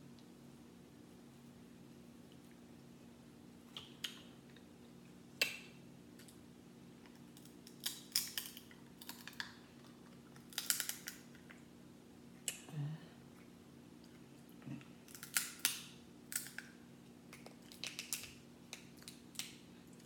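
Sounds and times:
crab shells cracking: 0:07.1 - 0:11.6, 0:15.0 - 0:19.6.

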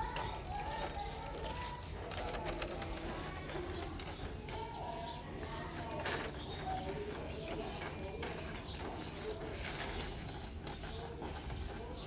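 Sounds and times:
doves cooing: 0:00.0 - 0:12.0
plastic bag crackling: 0:05.3 - 0:11.9.

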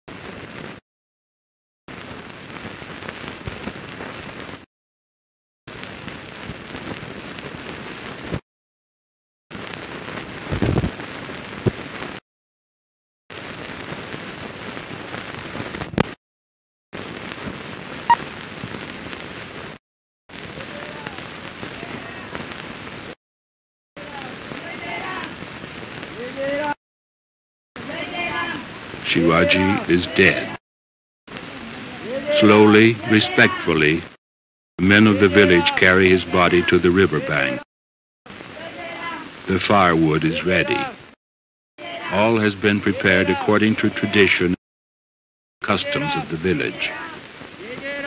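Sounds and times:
old film soundtrack crackling hiss: 0:00.1 - 0:00.8, 0:01.9 - 0:04.7, 0:05.7 - 0:08.4, 0:09.5 - 0:12.2, 0:13.3 - 0:16.2, 0:17.0 - 0:23.2, 0:24.0 - 0:26.8, 0:27.8 - 0:30.6, 0:31.3 - 0:34.2, 0:34.8 - 0:37.6, 0:38.3 - 0:41.2, 0:41.8 - 0:44.6, 0:45.6 - 0:48.0.

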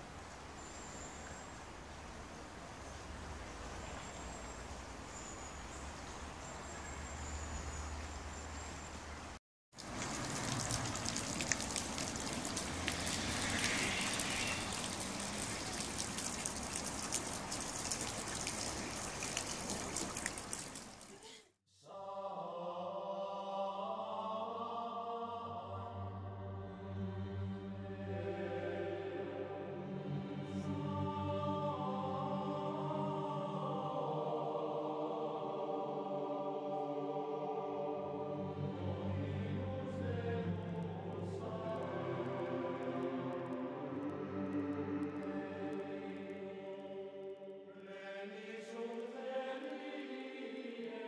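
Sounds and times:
outdoor ambience: 0:00.0 - 0:51.0
fountain water splashing: 0:08.9 - 0:21.3
choral chanting music: 0:21.7 - 0:51.0.

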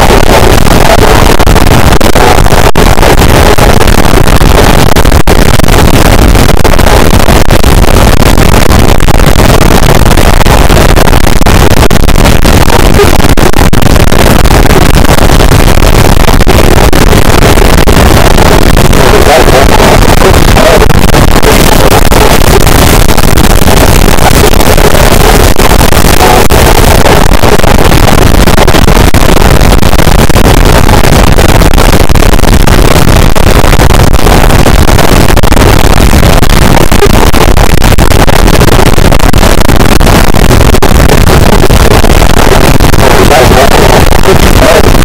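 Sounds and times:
dense distorted noise wall: 0:00.0 - 0:45.0.

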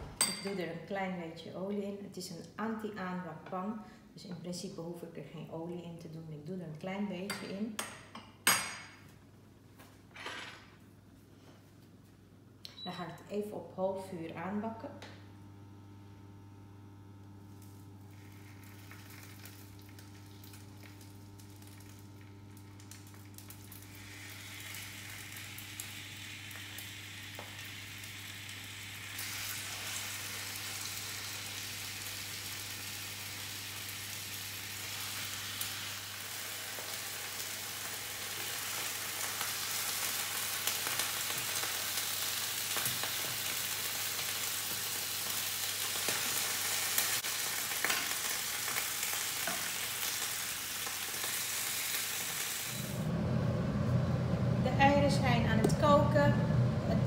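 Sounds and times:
chicken sizzling in a frying pan: 0:16.5 - 0:53.1.

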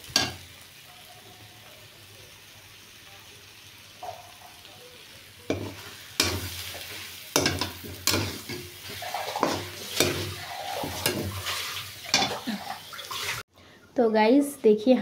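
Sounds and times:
frying sizzling: 0:00.0 - 0:13.5
spatula scraping a wok: 0:05.5 - 0:12.4.

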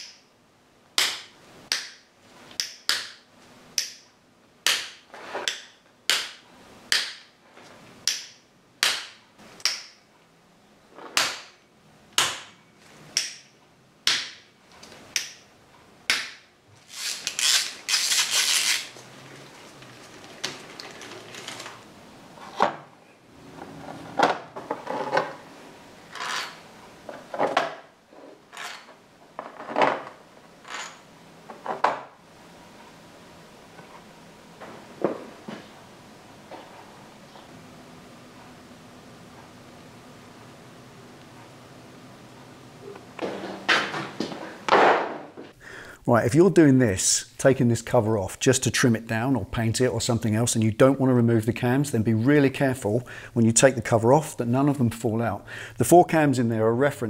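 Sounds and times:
screws cracking loose clicks: 0:16.9 - 0:18.9.

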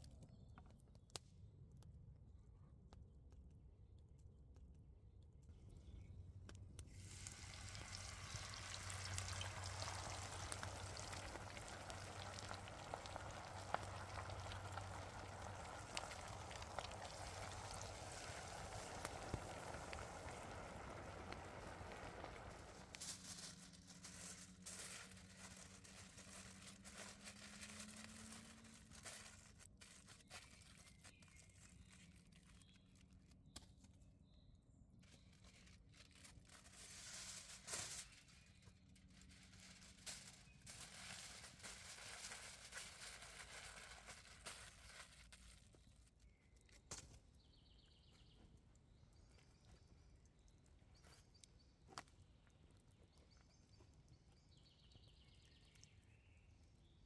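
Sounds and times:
wrapper rustling and crinkling: 0:22.4 - 0:33.5, 0:35.0 - 0:46.3.

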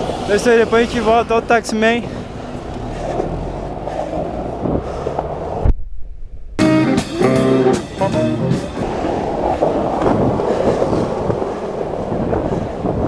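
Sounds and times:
skateboard wheels rolling on pavement: 0:00.0 - 0:05.8, 0:06.6 - 0:13.0
city traffic: 0:00.0 - 0:13.0
music: 0:06.6 - 0:08.8.

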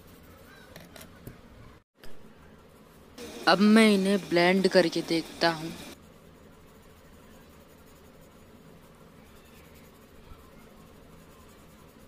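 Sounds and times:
pencil scratching on paper: 0:00.0 - 0:00.7, 0:03.2 - 0:12.0.

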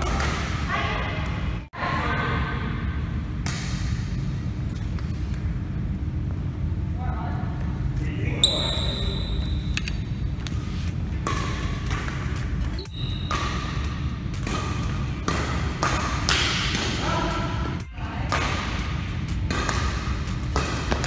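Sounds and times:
rackets striking shuttlecock: 0:00.0 - 0:00.7, 0:08.4 - 0:17.7, 0:18.3 - 0:21.0
steady low hum: 0:00.0 - 0:21.0
sneakers squeaking on wooden floor: 0:08.4 - 0:09.9, 0:12.7 - 0:13.6.

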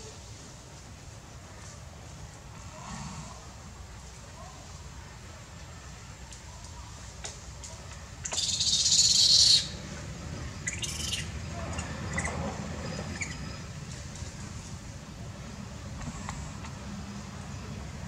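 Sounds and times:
harsh high bird calls: 0:08.2 - 0:09.8, 0:10.6 - 0:13.7.

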